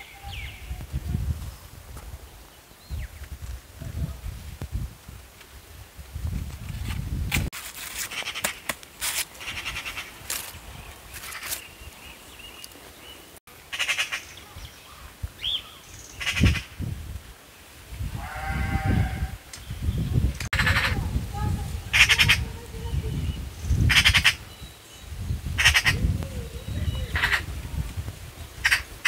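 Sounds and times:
shears snipping stalks: 6.8s - 11.7s
bird chirp: 9.4s - 16.6s, 22.9s - 27.4s
farm animal bleating: 18.2s - 19.4s.

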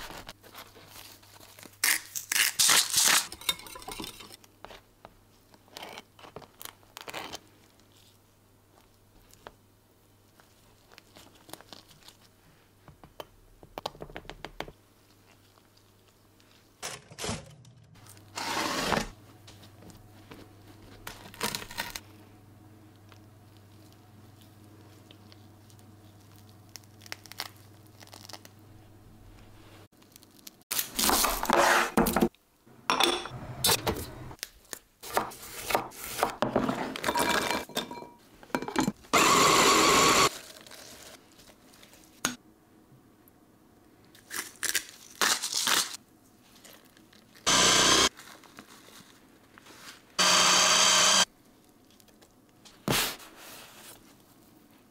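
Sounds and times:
electric food chopper: 39.2s - 40.3s, 47.5s - 48.1s, 50.2s - 51.3s.

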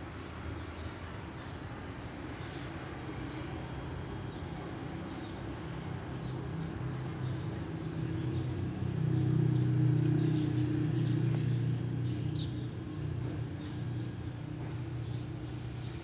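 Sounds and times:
vehicle engine hum: 3.9s - 16.0s.

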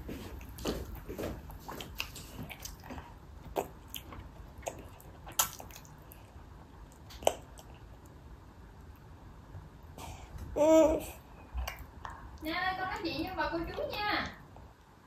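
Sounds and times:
toddler chewing: 0.0s - 8.2s, 10.0s - 12.4s
wet mouth smacks: 4.6s - 5.9s, 6.9s - 7.7s.

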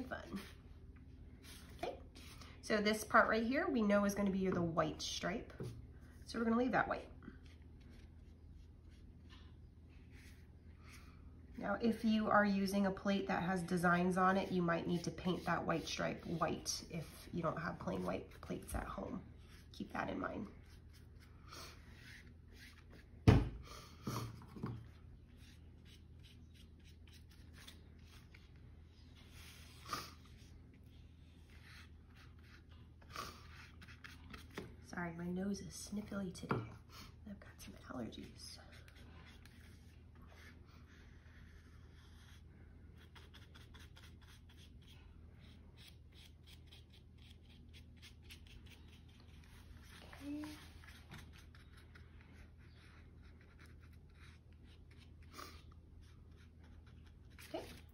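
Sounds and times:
low steady hum: 0.0s - 57.9s
paintbrush scraping on paper plate: 13.3s - 23.1s.

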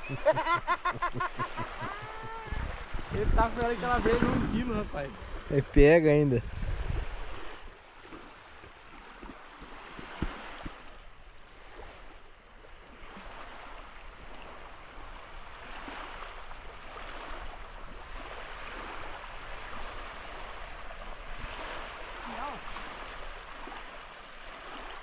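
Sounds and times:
river water rushing: 6.9s - 25.0s.

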